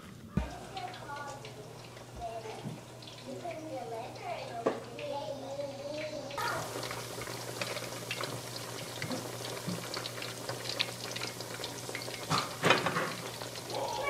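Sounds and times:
oil bubbling and sizzling: 0.0s - 14.0s.

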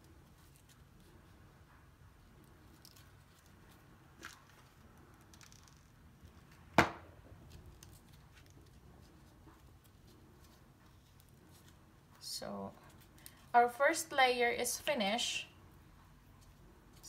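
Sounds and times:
sharp loud knock: 6.8s - 7.0s.

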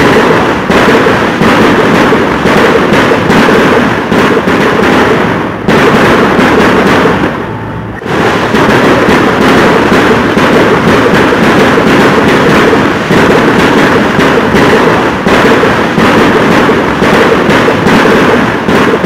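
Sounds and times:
fireworks crackling barrage: 0.0s - 19.0s.

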